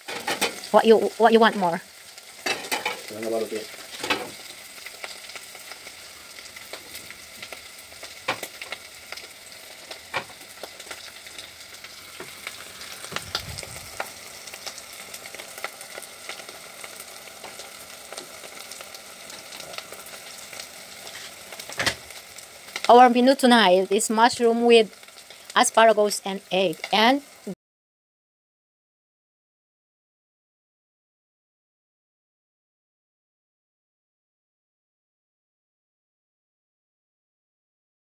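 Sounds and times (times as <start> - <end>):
vegetables sizzling in a pot: 0.0 - 27.6.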